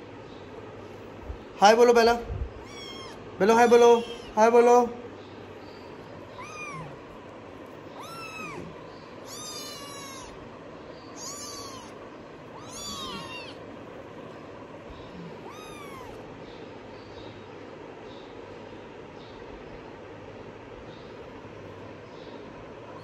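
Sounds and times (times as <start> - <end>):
kitten mewing: 2.5 - 4.6, 6.2 - 7.2, 7.9 - 10.5, 11.1 - 13.9, 15.0 - 16.4.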